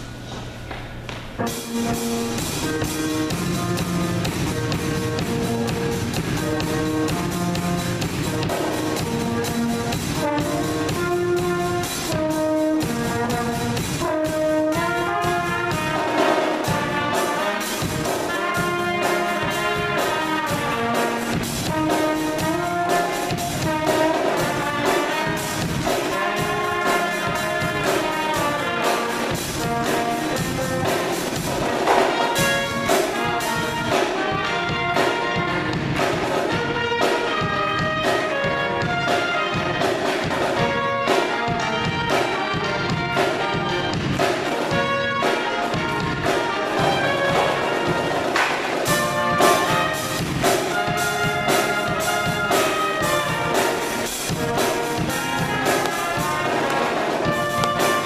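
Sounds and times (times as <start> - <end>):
drum kit: 0.0 - 58.0
trombone: 1.4 - 58.0
trumpets: 1.4 - 58.0.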